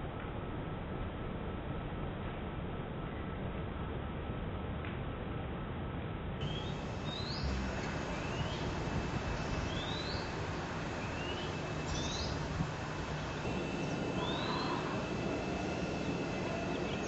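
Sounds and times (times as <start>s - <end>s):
steady background noise: 0.0s - 17.0s
bird chirping: 6.4s - 17.0s.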